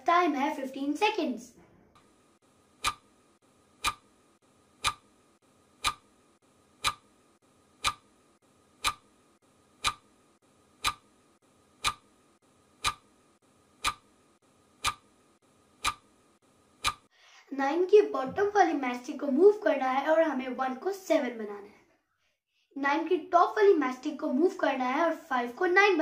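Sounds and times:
clock ticking: 2.8 - 4.2, 4.8 - 8.2, 8.8 - 9.2, 9.8 - 10.2, 10.8 - 11.2, 11.8 - 12.2, 12.8 - 13.2, 13.8 - 14.2, 14.8 - 15.1, 15.8 - 16.1, 16.8 - 17.1.

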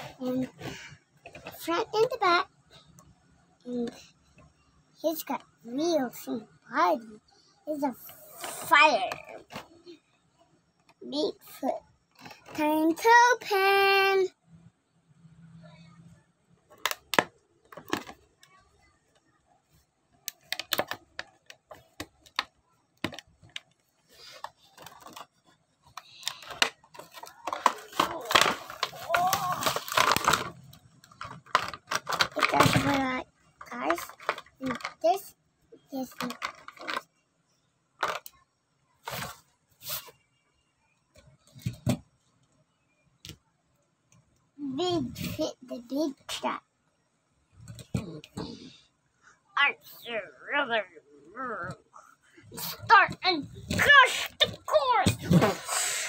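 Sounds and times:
plastic crinkling: 24.2 - 33.0
plastic packaging cracking: 26.2 - 32.8.

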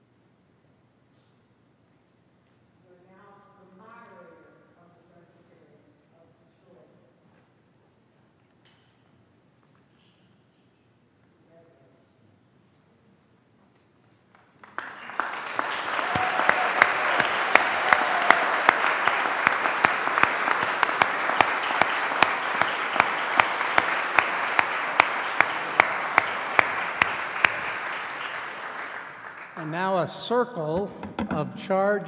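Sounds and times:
sharp nearby claps: 14.3 - 29.7
congregation applauding: 14.3 - 30.8.

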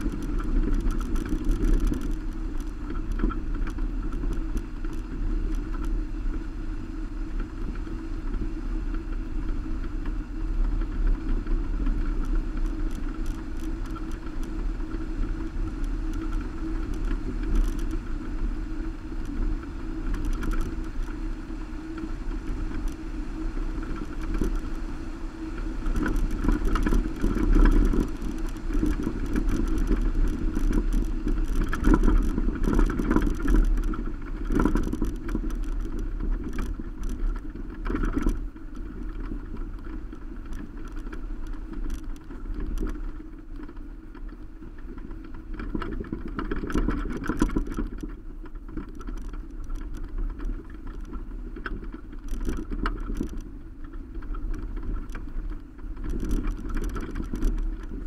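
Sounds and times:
knocks and rattles from gravel: 0.0 - 6.0, 25.8 - 58.0
car engine and tyre noise: 0.0 - 58.0.

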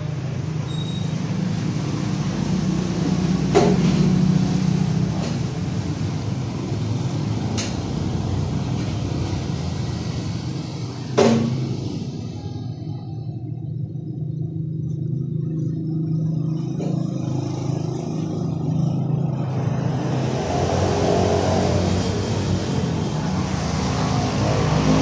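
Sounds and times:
steady low hum: 4.3 - 25.0.

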